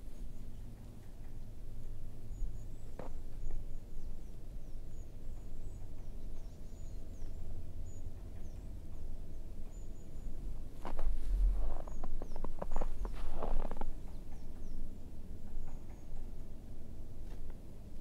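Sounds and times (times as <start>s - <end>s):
low rumble of movement: 0.0s - 18.0s
footsteps on trail: 10.8s - 13.8s.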